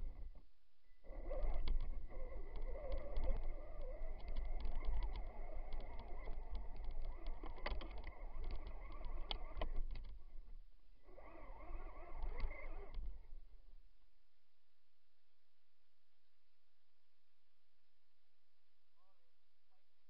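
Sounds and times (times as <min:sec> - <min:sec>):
electric motor and gears whining: 0:01.1 - 0:10.2, 0:11.1 - 0:13.3
sharp clicks and knocks: 0:01.2 - 0:10.6, 0:11.2 - 0:13.3.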